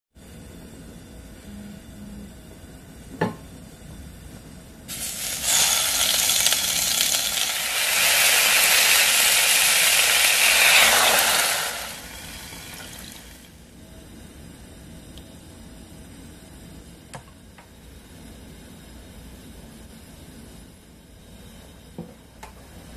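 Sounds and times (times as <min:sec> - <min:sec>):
water pouring into a pot: 0:04.9 - 0:13.5.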